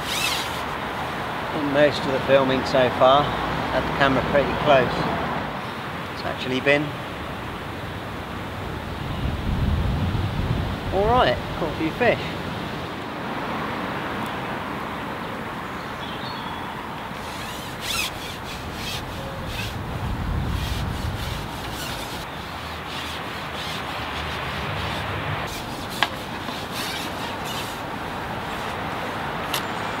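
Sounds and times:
fishing pole rubbing and scraping: 0:00.0 - 0:00.8, 0:17.2 - 0:29.2
outdoor rushing noise: 0:17.2 - 0:29.6.

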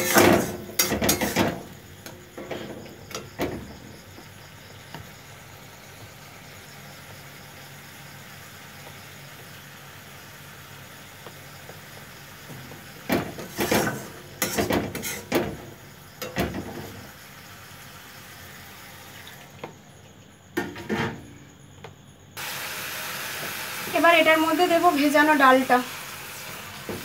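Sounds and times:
steel spatula scraping steel pan: 0:00.0 - 0:01.6, 0:13.4 - 0:15.3
low hiss from pan: 0:00.0 - 0:19.6, 0:22.4 - 0:27.0.

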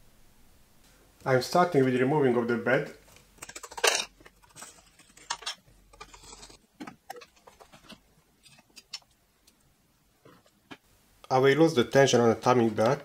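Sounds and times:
metal parts clicking and rattling: 0:03.1 - 0:09.1.

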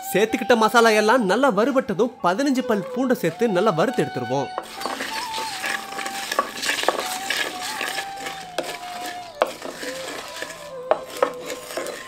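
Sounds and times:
faint held melody: 0:00.0 - 0:12.0
spoon scraping spices in a pan: 0:04.5 - 0:12.0
spoon knocking against pan: 0:04.6 - 0:12.0.

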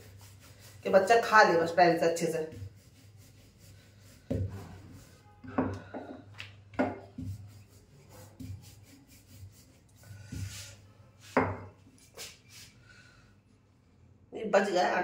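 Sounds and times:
rolling pin rubbing on dough: 0:00.0 - 0:05.4, 0:06.9 - 0:12.7.

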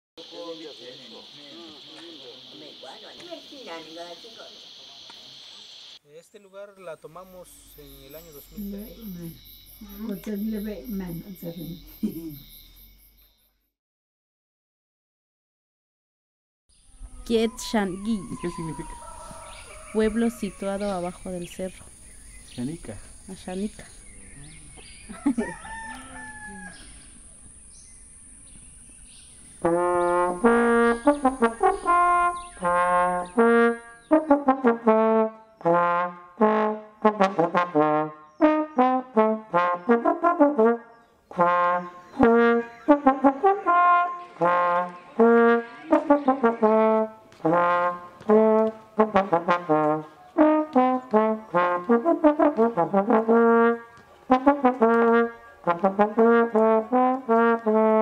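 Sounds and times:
trombone melody: 0:29.6 - 0:58.0.

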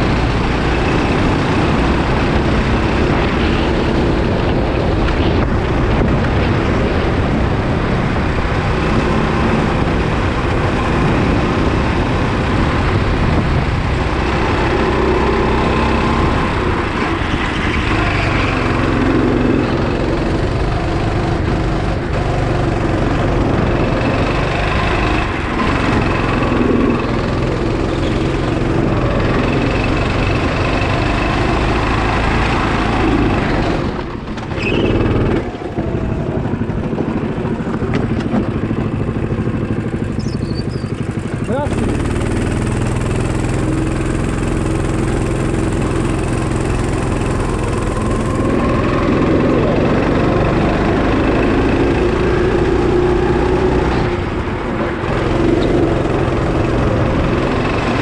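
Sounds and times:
go-kart engine running: 0:00.0 - 0:58.0
heavy low rumble: 0:00.0 - 0:58.0.

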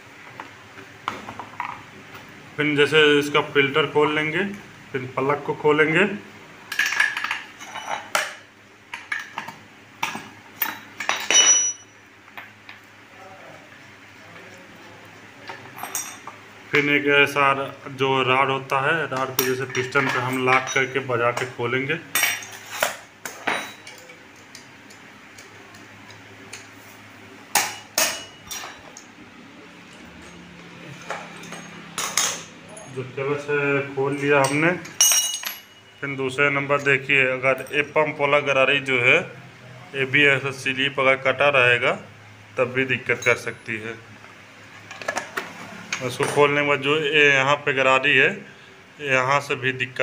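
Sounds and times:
metal spanner clinking: 0:10.6 - 0:12.0, 0:34.4 - 0:35.9.

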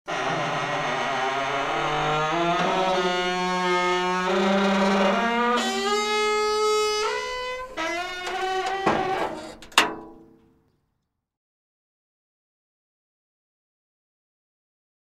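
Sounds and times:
metal joints squeaking: 0:00.5 - 0:10.5
metal knock: 0:08.8 - 0:10.5.

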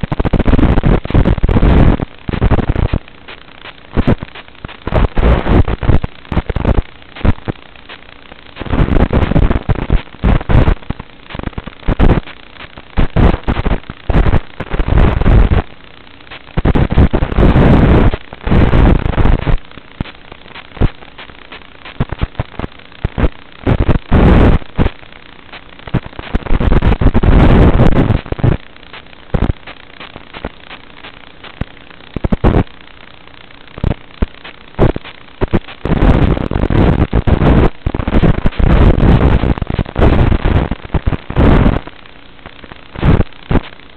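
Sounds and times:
short sharp pops: 0:28.1 - 0:32.6.

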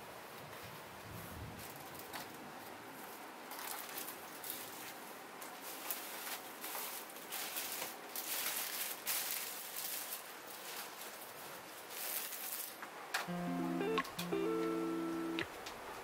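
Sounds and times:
plastic bags rustling: 0:03.5 - 0:12.8.

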